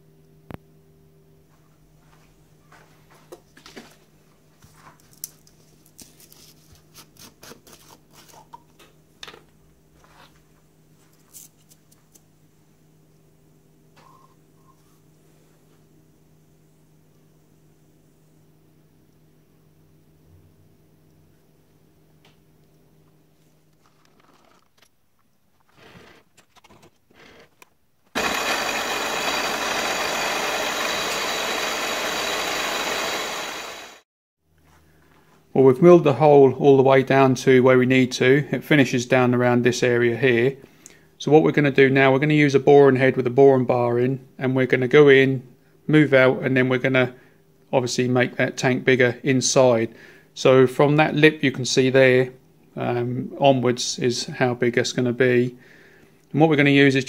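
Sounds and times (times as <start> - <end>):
high machine whine: 28.2 - 34.0
milling machine cutting metal: 28.2 - 34.0.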